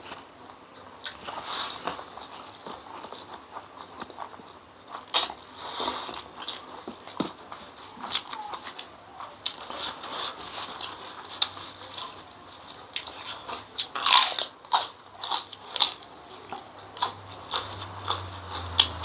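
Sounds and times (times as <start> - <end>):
person chewing with crunches: 0.0 - 19.0.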